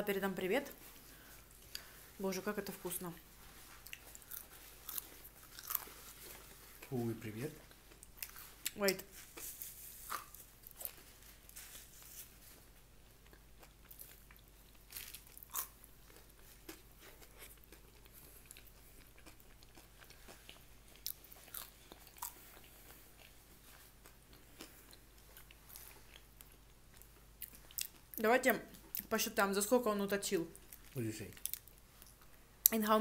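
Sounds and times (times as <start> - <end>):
crunchy chewing of food: 3.4 - 29.1.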